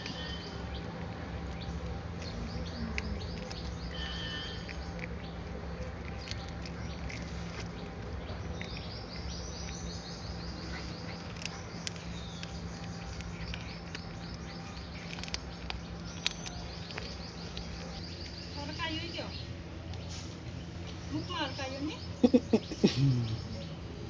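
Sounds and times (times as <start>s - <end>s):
kitten chewing: 0.0s - 18.6s
birds chirping: 0.0s - 24.0s.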